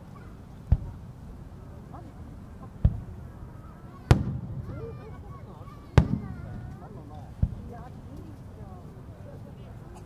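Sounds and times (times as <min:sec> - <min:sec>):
crowd chatter: 0:00.0 - 0:10.0
firework shells bursting: 0:04.1 - 0:04.9, 0:06.0 - 0:07.7.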